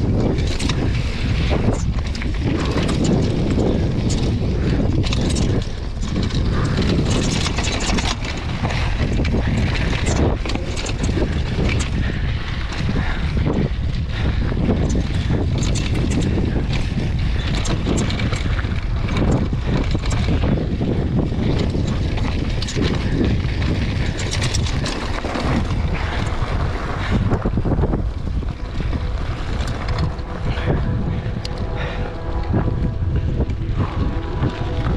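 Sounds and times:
bike rattling over bumps: 0.0 - 34.9
wind on microphone: 0.0 - 34.9
tyres crunching on gravel: 14.2 - 34.9.

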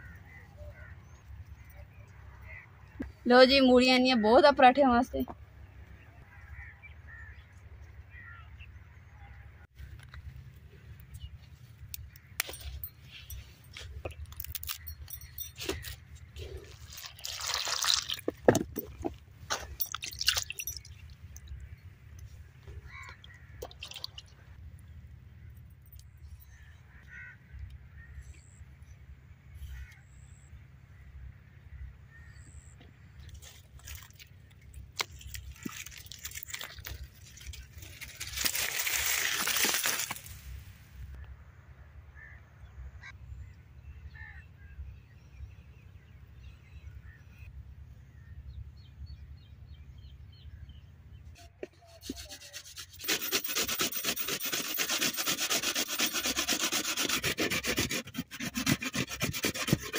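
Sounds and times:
radish grated on metal grater: 51.8 - 59.9.

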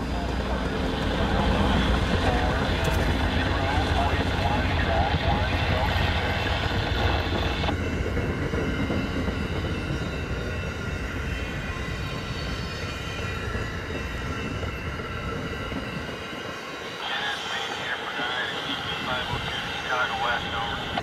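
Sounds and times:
train wheels rumbling and rattling: 0.0 - 16.8.

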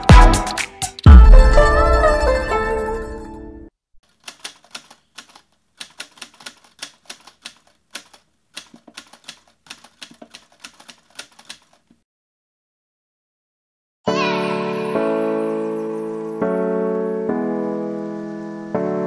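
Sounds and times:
typewriter key clacks: 4.2 - 11.9.

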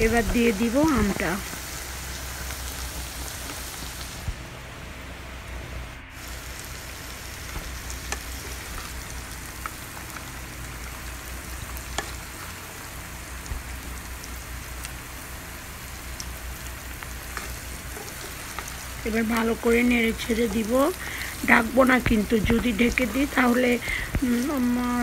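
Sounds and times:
oil sizzling in a pan: 0.0 - 4.4, 6.1 - 25.0
small pops of frying oil: 7.4 - 12.6, 13.3 - 15.0, 16.1 - 19.6.

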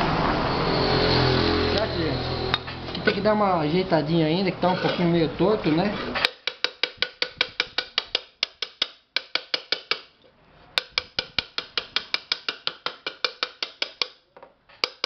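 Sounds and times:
hammer tapping on metal lid: 6.2 - 10.1, 10.8 - 14.2, 14.8 - 15.0.

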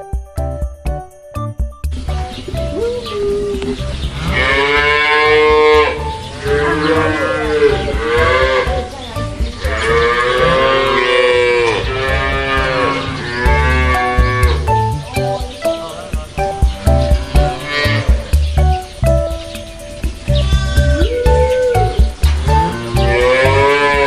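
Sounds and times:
cattle mooing: 4.1 - 8.9, 9.6 - 14.7, 17.2 - 18.3, 22.5 - 24.0.

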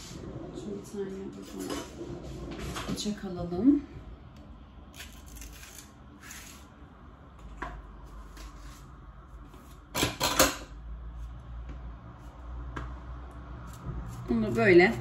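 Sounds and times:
cutlery clatter: 10.0 - 10.7.

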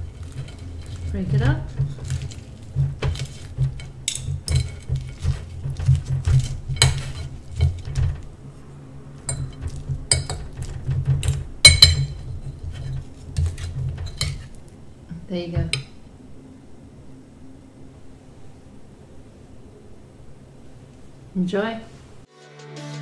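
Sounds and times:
cutlery clinking on plate: 0.0 - 8.2, 9.2 - 14.6
low steady hum: 0.0 - 22.3.

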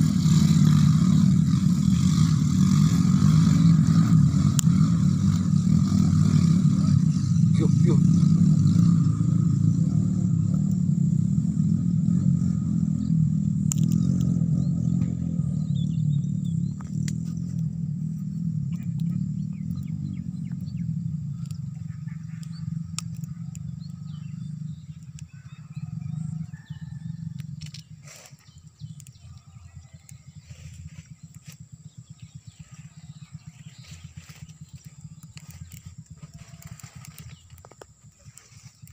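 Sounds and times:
motorcycle engine running: 0.0 - 38.9
faint bird chirps: 13.8 - 38.9.

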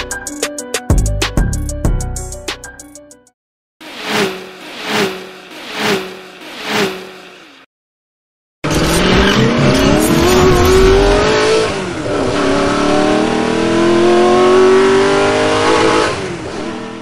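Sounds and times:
engine accelerating hard: 3.9 - 7.6, 8.6 - 17.0.

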